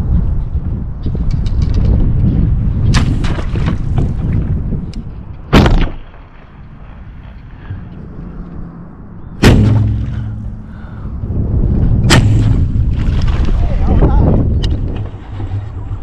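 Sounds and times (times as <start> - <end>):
wind rumble on microphone: 0.0 - 16.0
bow shot thump and string twang: 9.4 - 10.7, 12.0 - 13.1.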